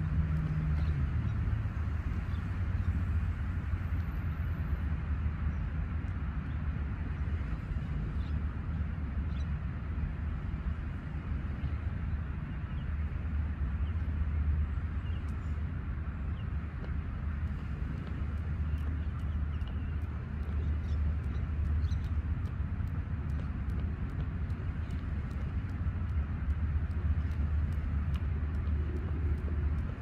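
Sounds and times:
low rumble beside the sea: 0.0s - 30.0s
jump rope ticking on rock: 16.8s - 30.0s.

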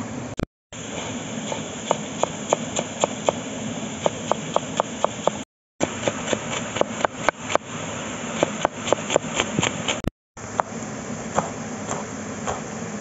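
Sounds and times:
knife chopping on wooden board: 1.5s - 3.4s, 4.0s - 7.6s, 8.4s - 10.7s, 11.4s - 12.7s.

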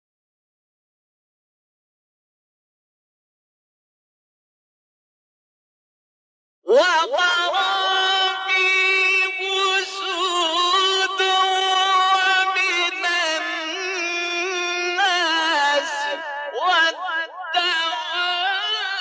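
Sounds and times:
man chanting melodically: 6.7s - 19.0s.

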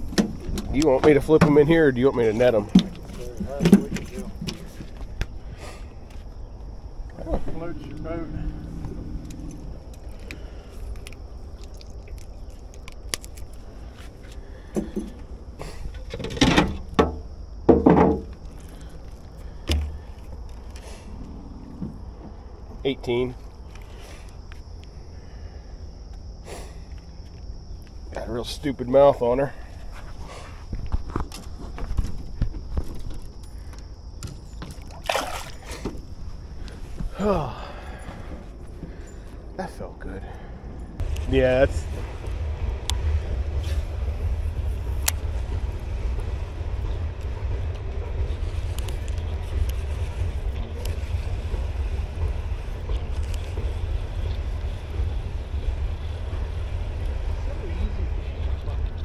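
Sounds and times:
steady low rumble: 0.0s - 34.2s, 36.0s - 59.0s
water sloshing: 34.6s - 36.6s
fish splashing: 34.8s - 35.8s.

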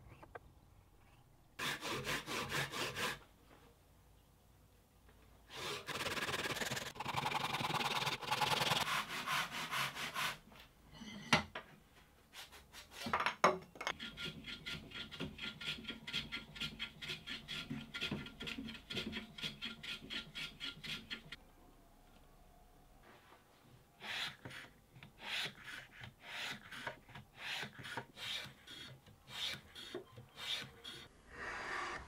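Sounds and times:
hand plane strokes on wood: 8.4s - 10.4s, 13.9s - 21.4s.

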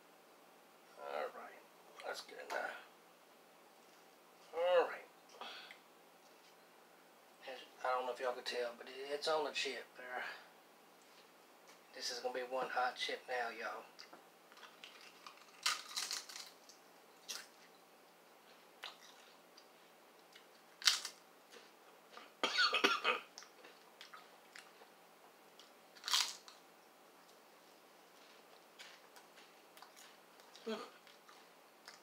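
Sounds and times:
quiet chewing: 11.0s - 11.8s, 13.9s - 17.8s, 18.4s - 22.4s, 23.3s - 32.0s
potato chip crunching: 14.6s - 17.6s, 20.2s - 21.7s, 25.6s - 26.6s.

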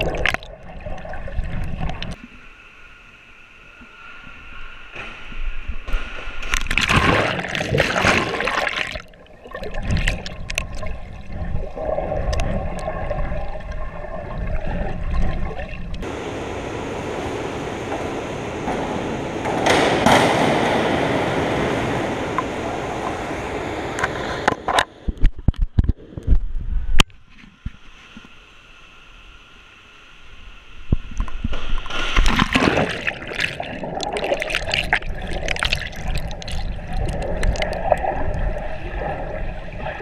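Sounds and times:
underwater bubbling and gurgling: 0.0s - 2.5s, 5.4s - 16.1s, 30.8s - 40.0s
swimming splashes: 6.0s - 19.4s, 31.5s - 40.0s.

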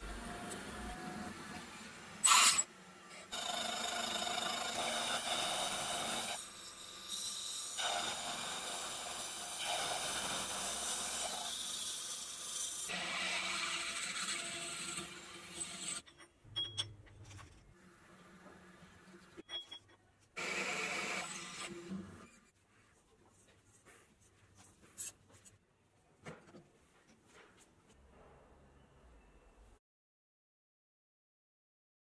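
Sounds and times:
saw cutting metal with ringing: 3.3s - 16.0s.

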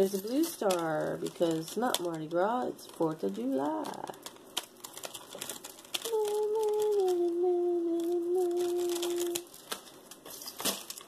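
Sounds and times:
woman humming: 6.0s - 9.4s.

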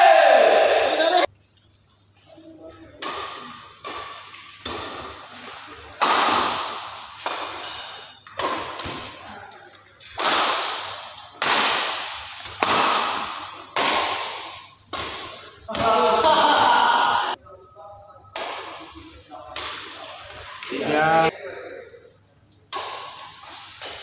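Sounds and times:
badminton racket hitting shuttlecock: 3.0s - 9.2s, 10.0s - 17.3s, 18.4s - 20.7s, 22.7s - 24.0s.

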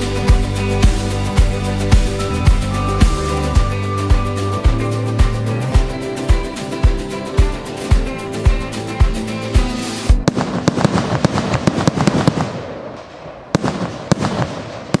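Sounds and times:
music with thudding beat: 0.0s - 10.4s
fireworks crackling and banging: 9.1s - 15.0s.

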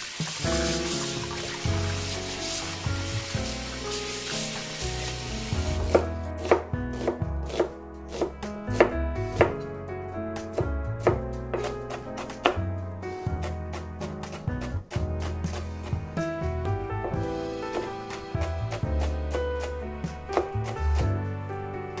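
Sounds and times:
tap water running into bowl: 0.0s - 6.0s
knife slicing on cutting board: 5.0s - 9.6s.

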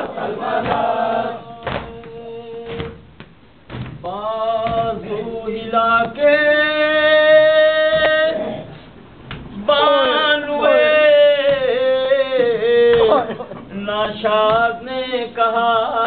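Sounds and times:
men chanting a lament: 0.0s - 3.0s, 4.0s - 8.9s, 9.6s - 16.0s
hands beating on chests: 0.6s - 1.0s, 1.6s - 5.0s
person singing into a microphone: 4.0s - 8.8s, 9.6s - 16.0s.

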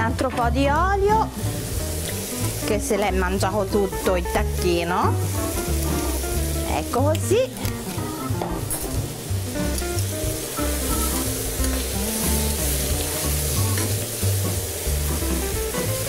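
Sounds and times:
background music: 0.0s - 16.0s
meat sizzling in oil: 0.8s - 16.0s
fork and spoon turning meat: 4.0s - 9.0s.

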